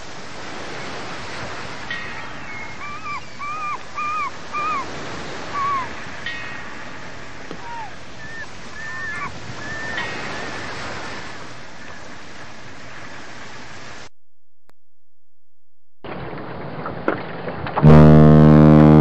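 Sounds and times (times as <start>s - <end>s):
short high chirping calls: 2.5s - 4.9s.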